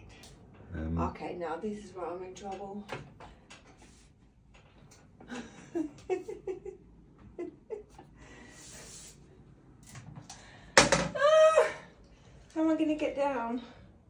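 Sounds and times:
breathing: 8.1s - 9.3s, 10.3s - 10.8s.

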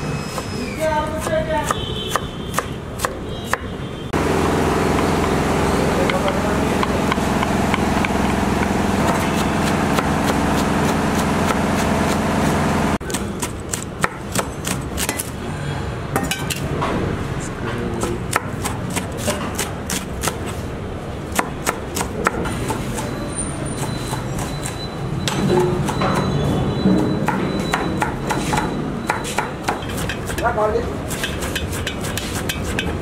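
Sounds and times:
engine noise: 4.1s - 13.1s.

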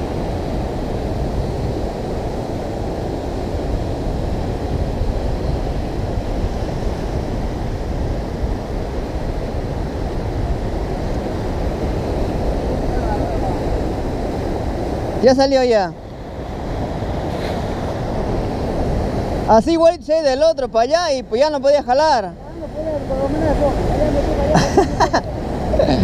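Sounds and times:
surf churning against rocks: 0.0s - 26.0s
wind buffeting microphone: 0.0s - 26.0s.

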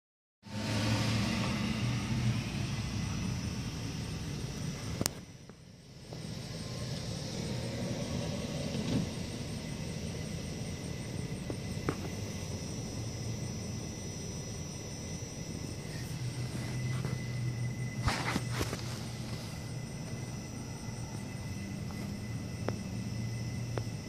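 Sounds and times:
high insect trill: 0.5s - 24.0s.

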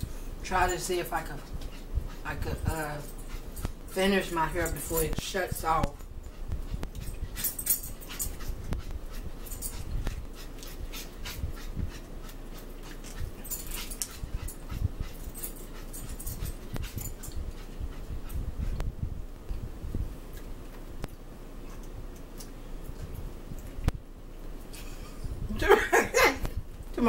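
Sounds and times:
dog breathing sounds: 1.2s - 20.0s.

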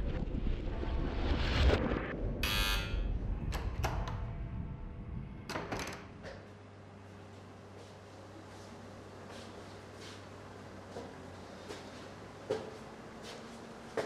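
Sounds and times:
low rumble: 0.0s - 7.4s
harsh buzz: 2.4s - 3.3s
faint steady hum: 2.4s - 14.0s.

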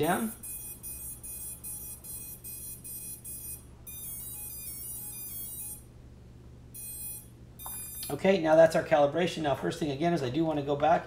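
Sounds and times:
short electronic beeps: 0.0s - 5.8s, 6.8s - 8.1s.

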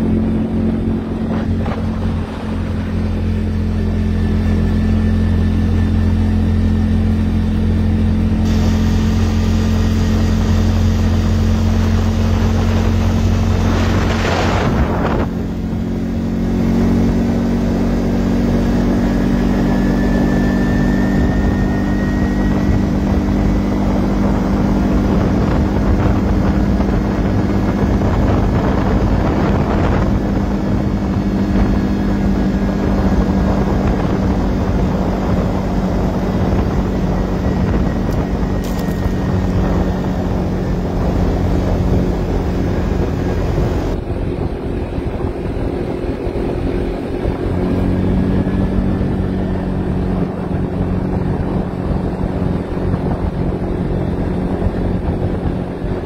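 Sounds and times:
wind on microphone: 0.0s - 6.6s, 8.4s - 56.0s
atv engine running: 0.0s - 56.0s.

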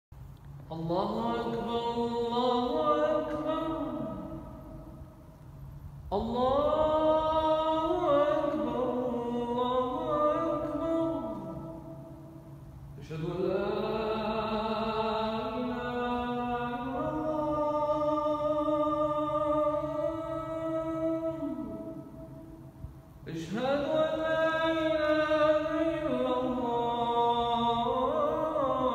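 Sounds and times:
man chanting call to prayer: 0.7s - 4.9s, 23.3s - 28.9s.

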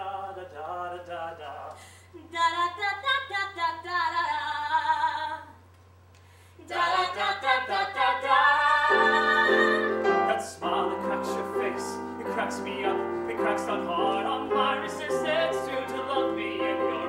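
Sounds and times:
woman singing: 2.2s - 5.6s, 6.6s - 10.1s.

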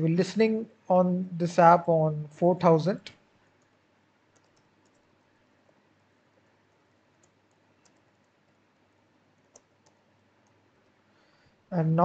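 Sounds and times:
clicks: 3.1s - 5.8s
computer keyboard keystrokes: 3.6s - 5.1s, 7.2s - 8.4s, 9.4s - 10.6s.

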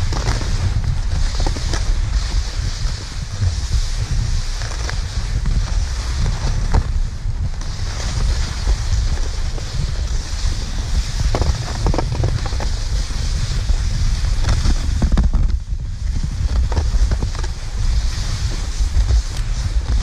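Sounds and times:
skis sliding on snow: 0.0s - 20.0s
wind on microphone: 0.0s - 20.0s.

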